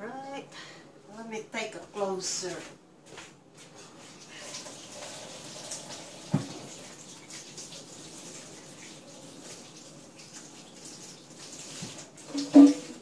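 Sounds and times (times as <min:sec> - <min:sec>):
water running from a tap: 0:04.2 - 0:13.0.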